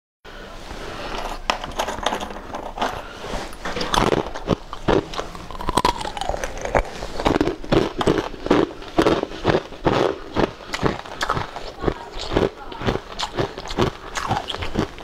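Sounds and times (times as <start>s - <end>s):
crunching icy flakes: 2.7s - 15.0s.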